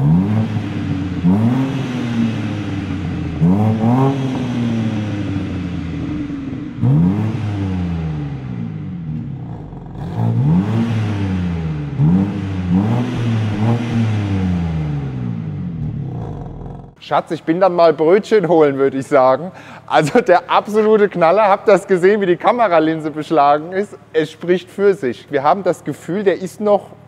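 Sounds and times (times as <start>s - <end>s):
car engine revving and idling: 0.0s - 17.0s.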